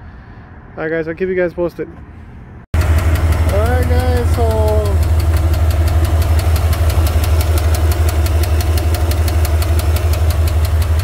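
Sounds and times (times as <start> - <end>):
fast steady engine ticking: 2.8 - 11.0
pickup truck engine idling: 2.8 - 11.0.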